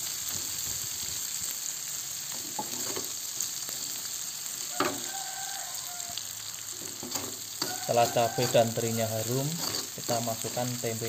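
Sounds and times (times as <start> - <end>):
food sizzling in a wok: 0.0 - 11.0
metal spatula scraping wok: 2.4 - 3.2, 6.7 - 10.8
spatula knocking ringing wok: 4.8 - 5.1, 7.0 - 8.8.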